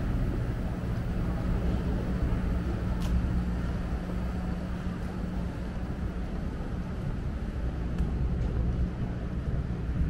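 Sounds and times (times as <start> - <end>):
low mechanical hum and rumble: 0.0 - 10.0
faint clicks: 3.0 - 3.2.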